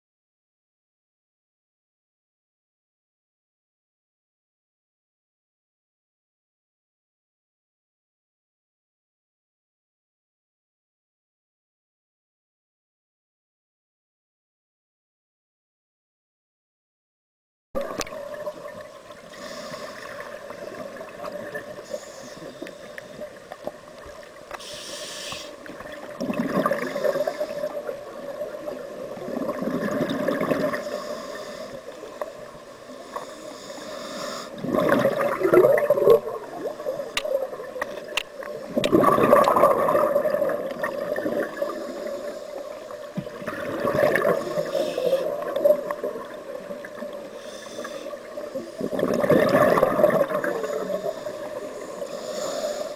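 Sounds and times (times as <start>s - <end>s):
scuba diver breathing through regulator: 19.3s - 20.6s, 21.7s - 23.2s, 24.6s - 25.8s, 26.7s - 27.9s, 30.7s - 32.1s, 33.0s - 35.1s, 41.6s - 42.9s, 44.2s - 45.6s, 47.2s - 49.2s, 50.4s - 52.9s
bubbles gurgling underwater: 25.8s - 30.9s, 34.6s - 42.1s, 43.0s - 47.2s, 48.7s - 51.6s.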